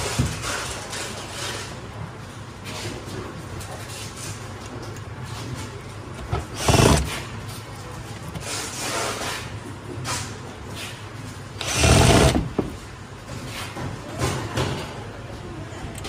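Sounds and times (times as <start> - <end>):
electric screwdriver whirring: 6.5 - 7.1, 11.6 - 12.5.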